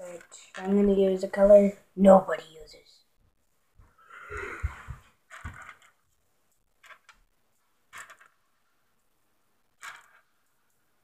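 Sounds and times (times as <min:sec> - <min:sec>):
candies clicking and rattling: 0:07.9 - 0:08.4, 0:09.8 - 0:10.6.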